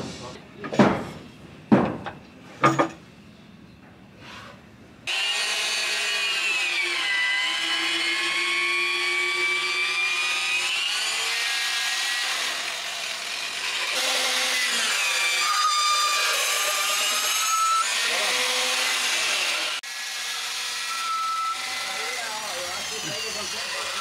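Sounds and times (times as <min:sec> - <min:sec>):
electric drill boring into wood: 0:05.1 - 0:24.0.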